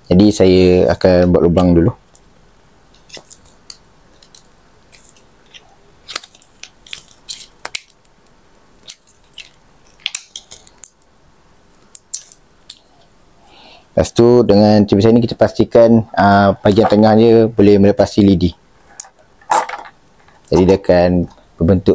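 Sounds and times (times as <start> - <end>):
scissors piercing plastic: 3.0 - 8.0.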